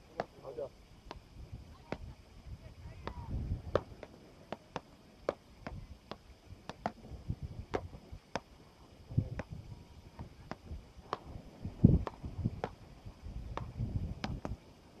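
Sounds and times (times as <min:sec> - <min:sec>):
paddles striking ball: 0:03.0 - 0:07.0, 0:10.2 - 0:12.8, 0:13.5 - 0:14.6.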